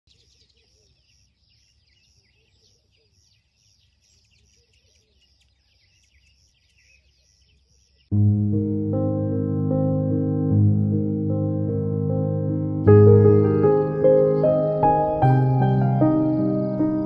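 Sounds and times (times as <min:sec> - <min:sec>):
small birds chirping: 0:00.0 - 0:08.2.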